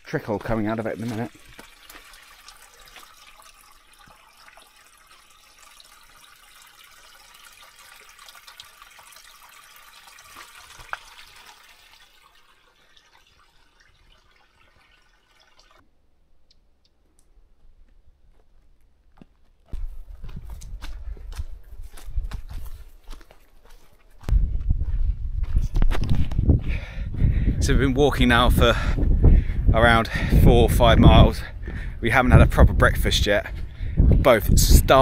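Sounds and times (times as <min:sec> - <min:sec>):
water trickling from a fountain: 0:00.4 - 0:15.8.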